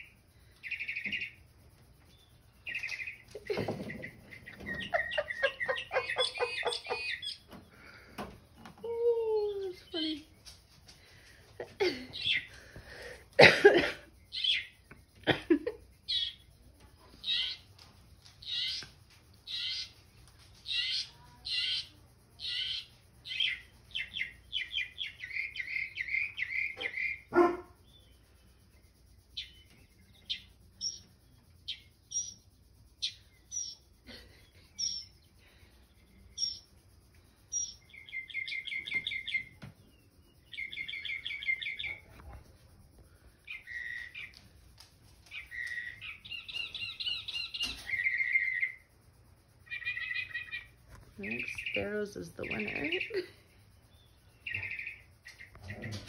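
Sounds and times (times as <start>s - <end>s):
sparrows chirping through speaker: 0.0s - 44.6s, 45.2s - 56.0s.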